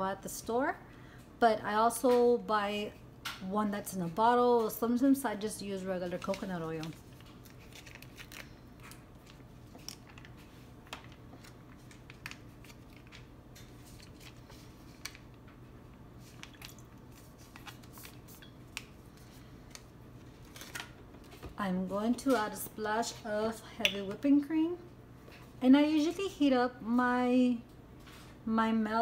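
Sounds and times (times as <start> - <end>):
low steady hum: 0.0 - 29.0
plastic packet crinkling: 6.1 - 15.4.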